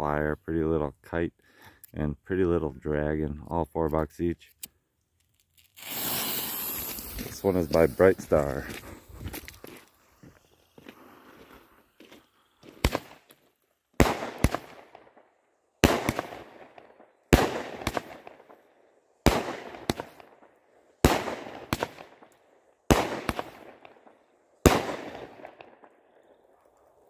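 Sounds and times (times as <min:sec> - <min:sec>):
small firework pops: 0:05.8 - 0:07.8, 0:12.8 - 0:13.4
firework bangs: 0:05.8 - 0:08.2, 0:15.8 - 0:16.7, 0:24.6 - 0:25.6.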